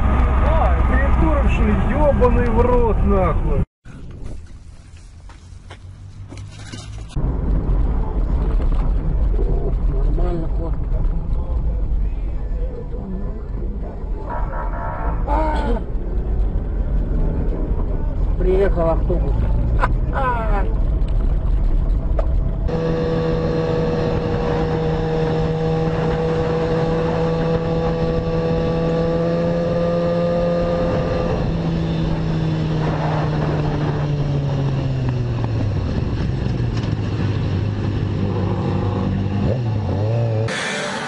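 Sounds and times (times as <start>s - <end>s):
motorcycle engine revving: 19.4s - 41.0s.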